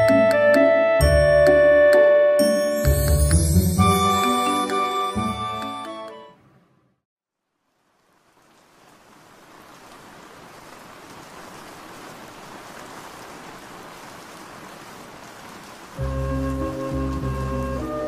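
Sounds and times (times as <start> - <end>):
steady rain falling: 7.3 - 18.0.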